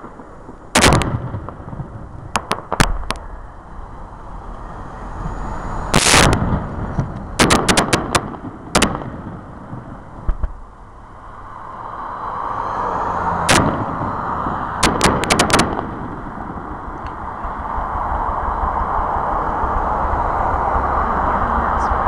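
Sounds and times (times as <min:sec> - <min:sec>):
fireworks bursting with bangs: 0:00.0 - 0:03.2, 0:05.2 - 0:10.7, 0:13.4 - 0:17.0
rushing background noise: 0:00.0 - 0:22.0.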